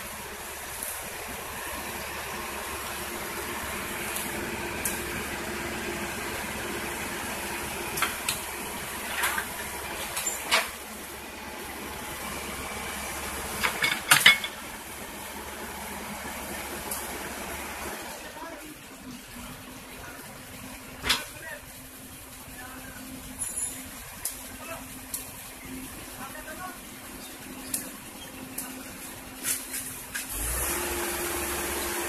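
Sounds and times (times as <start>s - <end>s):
excavator engine running: 0.0s - 32.0s
metallic clanks and knocks: 13.6s - 14.6s.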